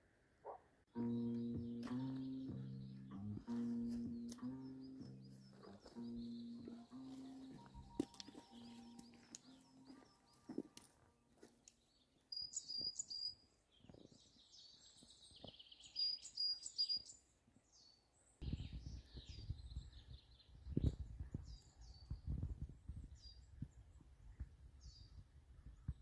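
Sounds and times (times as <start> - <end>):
songbirds chirping: 0.4 - 26.0.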